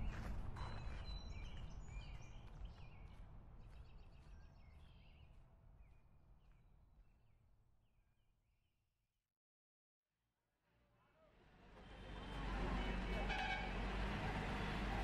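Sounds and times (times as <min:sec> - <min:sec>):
low outdoor background noise: 0:10.7 - 0:15.0.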